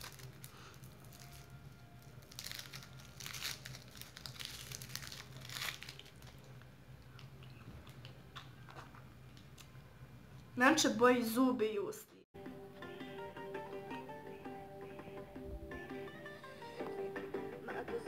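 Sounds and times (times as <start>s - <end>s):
wrapper crinkling: 0.0s - 7.3s.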